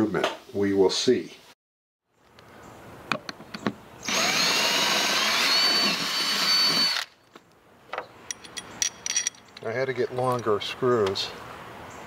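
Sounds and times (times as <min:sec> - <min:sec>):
cordless drill whining: 0:04.0 - 0:07.2.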